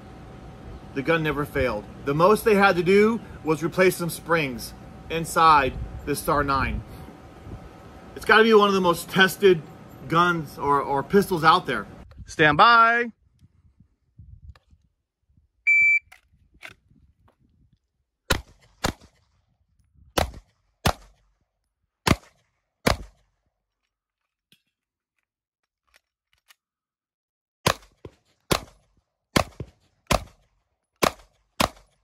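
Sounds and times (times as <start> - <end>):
shot timer beep: 15.7 - 16.2
pistol shots: 18.3 - 19.2, 20.2 - 21.2, 22.0 - 23.2, 27.6 - 32.0.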